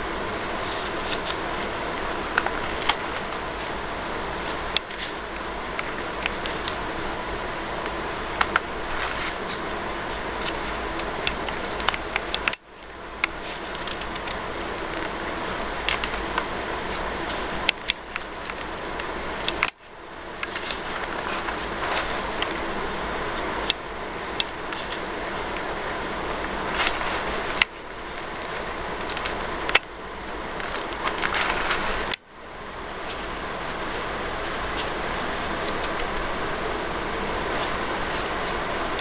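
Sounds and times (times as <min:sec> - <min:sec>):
fan-like room hiss: 0:00.0 - 0:39.0
small clicks: 0:07.8 - 0:15.2, 0:15.8 - 0:19.8, 0:26.4 - 0:29.9.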